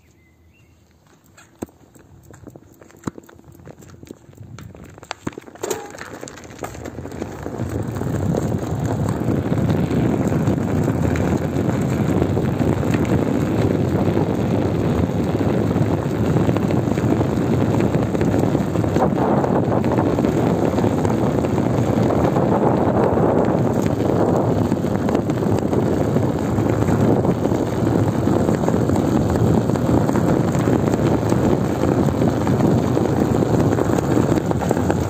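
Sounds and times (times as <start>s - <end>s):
flat bike tyre rolling on pavement: 0.1s - 35.0s
wind on microphone: 5.7s - 35.0s.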